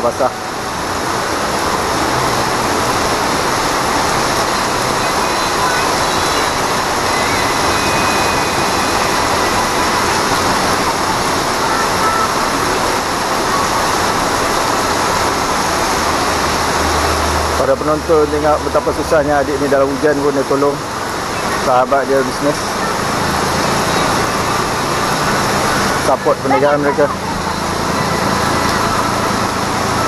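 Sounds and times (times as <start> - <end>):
heavy rain on pavement: 0.0 - 30.0.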